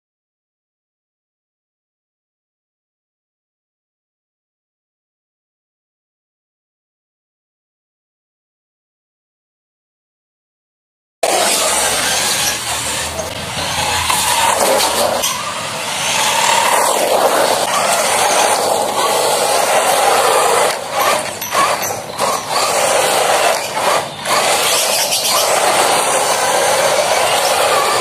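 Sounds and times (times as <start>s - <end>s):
rc car motor whirring: 11.2s - 28.0s.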